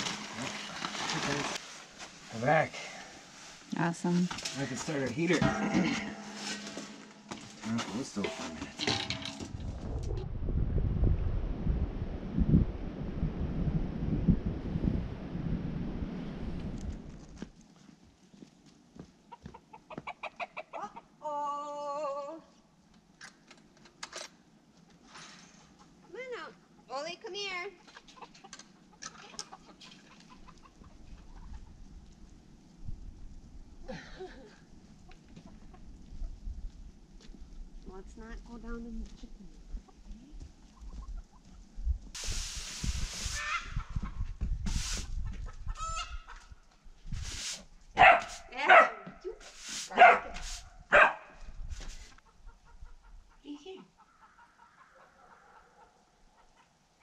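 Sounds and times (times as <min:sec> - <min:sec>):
broom sweeping pavers: 0:00.0 - 0:09.5, 0:42.2 - 0:43.8, 0:44.6 - 0:45.2, 0:47.0 - 0:50.8, 0:51.7 - 0:52.2
chickens clucking: 0:19.3 - 0:21.2, 0:27.8 - 0:31.8, 0:35.0 - 0:36.4, 0:39.8 - 0:41.6, 0:45.0 - 0:46.6, 0:52.2 - 0:56.8.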